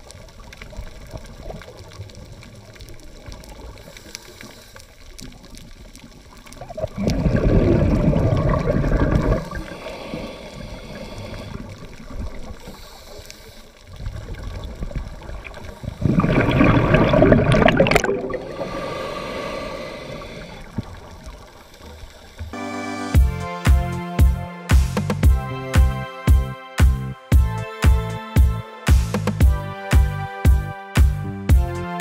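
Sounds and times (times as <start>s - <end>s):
underwater water noise: 0.0s - 23.2s
scuba diver breathing bubbles: 6.7s - 22.5s.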